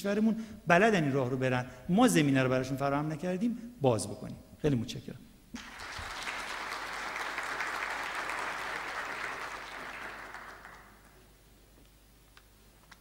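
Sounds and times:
audience applauding: 5.6s - 11.3s.

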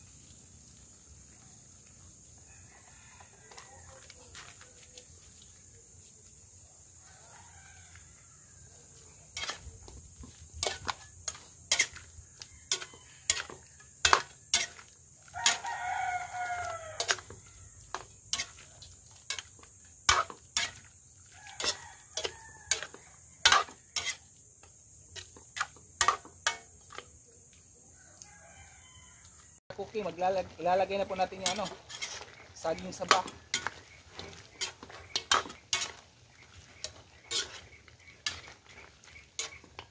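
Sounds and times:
rooster crowing: 2.4s - 4.5s, 7.0s - 9.0s, 12.0s - 14.5s, 15.3s - 18.0s, 21.2s - 24.0s, 27.8s - 29.6s
metal spatula scraping a wok: 9.3s - 27.2s, 31.0s - 39.9s.

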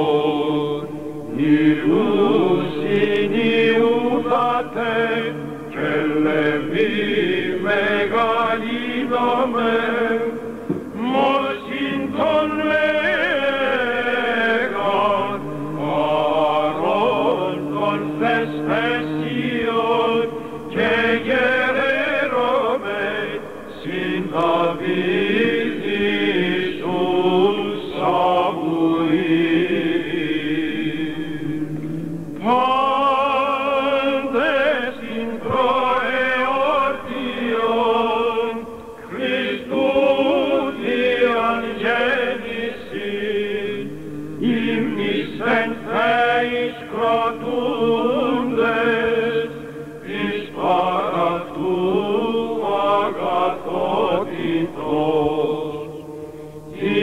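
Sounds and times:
held drone note: 42.5s - 46.7s.

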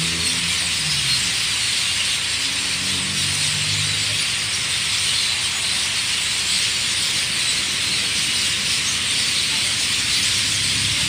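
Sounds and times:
flock of birds chirping: 0.0s - 11.0s
vehicle engine running: 0.0s - 11.0s.

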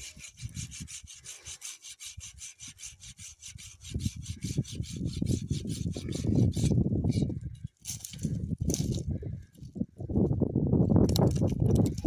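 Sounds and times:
hand saw cutting wood: 0.0s - 7.2s.

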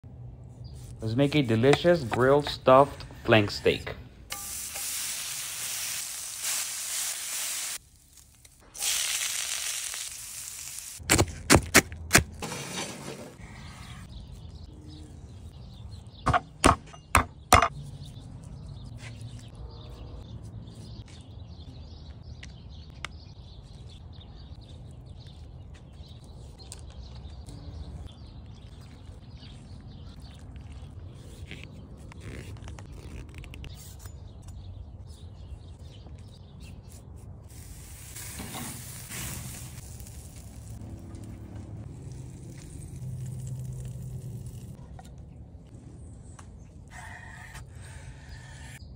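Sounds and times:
meat sizzling: 4.3s - 11.0s, 37.5s - 40.8s.

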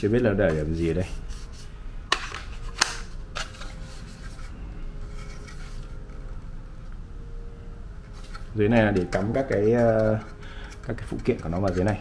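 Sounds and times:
plastic rubbing: 8.1s - 12.0s.

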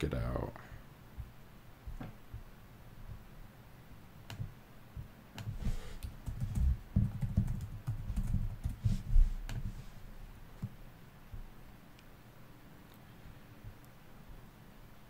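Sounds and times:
typing on a keyboard: 5.4s - 8.8s.

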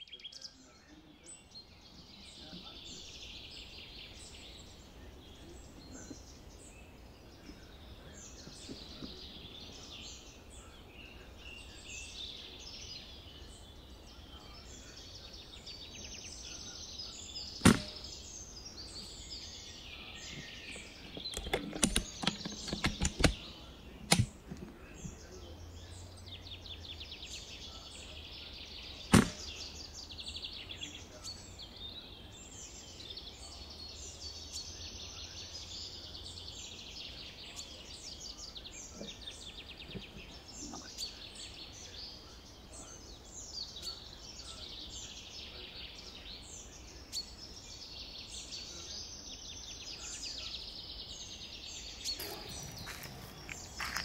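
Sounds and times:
songbirds chirping: 0.0s - 54.0s
small sharp click: 17.6s - 18.0s, 21.2s - 23.4s, 24.1s - 24.7s
air rifle shot: 17.6s - 18.1s, 29.1s - 29.6s.

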